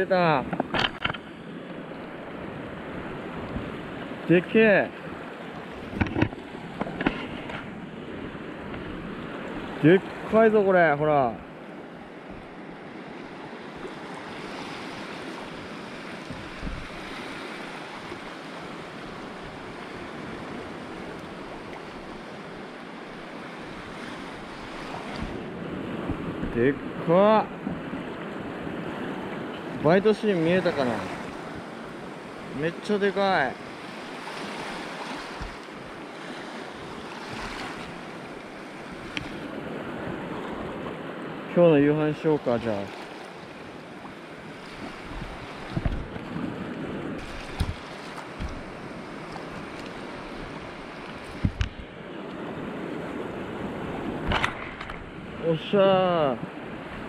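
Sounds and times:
reef water and surf washing: 0:00.0 - 0:57.0
wind rumble on microphone: 0:15.4 - 0:18.2, 0:23.8 - 0:29.8, 0:44.5 - 0:55.4.

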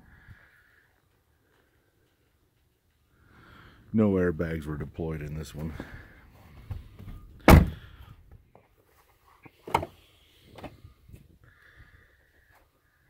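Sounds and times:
car door shutting thunk: 0:07.4 - 0:07.8.

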